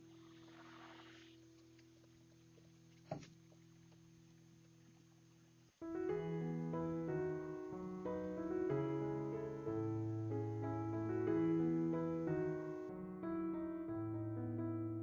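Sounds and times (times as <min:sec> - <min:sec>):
slow piano music: 0:05.7 - 0:15.0.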